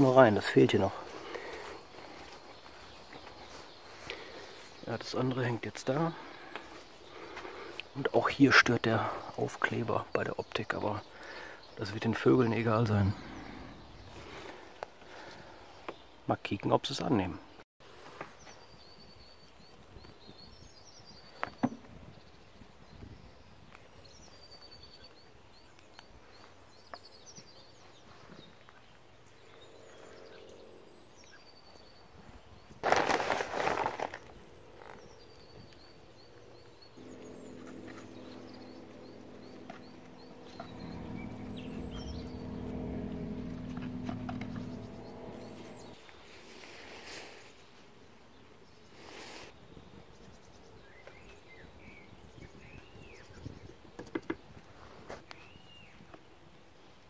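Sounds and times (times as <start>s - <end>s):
small birds chirping: 0.0s - 46.4s
rustling noise: 32.8s - 34.4s
steady low hum: 36.2s - 46.1s.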